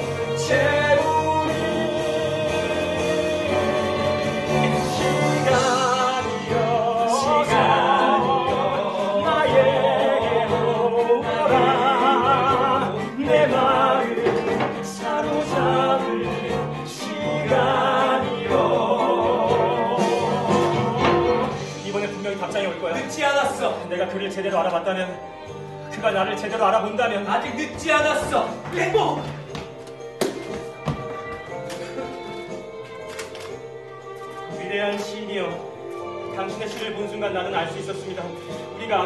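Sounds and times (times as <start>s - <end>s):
man singing with vibrato: 0.0s - 21.8s
instrumental accompaniment: 0.0s - 39.0s.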